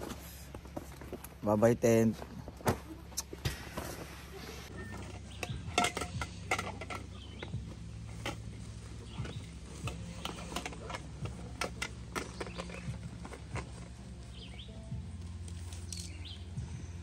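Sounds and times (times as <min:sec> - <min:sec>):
low steady rumble: 0:00.0 - 0:17.0
bird chirping: 0:07.0 - 0:07.8, 0:08.8 - 0:10.7, 0:12.1 - 0:13.4, 0:14.0 - 0:15.0, 0:15.8 - 0:16.7.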